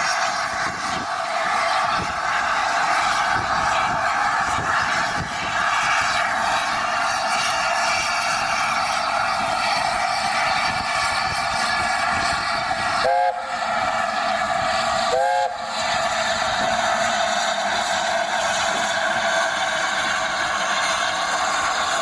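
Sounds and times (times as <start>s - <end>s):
steam hissing: 0.0s - 22.0s
steam locomotive whistle blasts: 12.9s - 14.1s, 15.0s - 16.1s.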